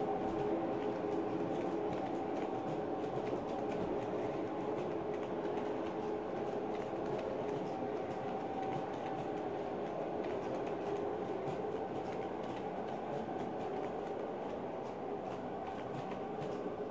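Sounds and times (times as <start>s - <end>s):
wheels clicking on rails: 0.0s - 16.9s.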